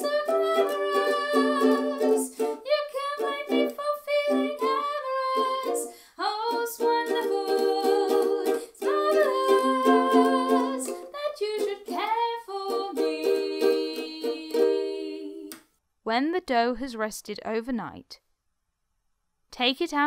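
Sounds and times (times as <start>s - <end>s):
woman singing: 0.0s - 15.5s
strummed ukulele: 0.0s - 15.6s.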